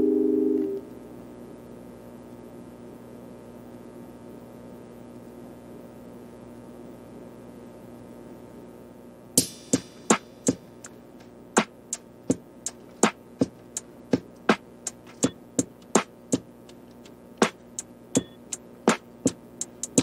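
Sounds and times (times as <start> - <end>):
crisp percussion beat: 9.4 - 20.0.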